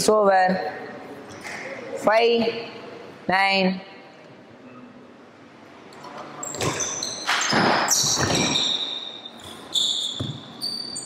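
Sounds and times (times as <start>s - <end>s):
shoes squeaking on wooden floor: 6.4s - 11.0s.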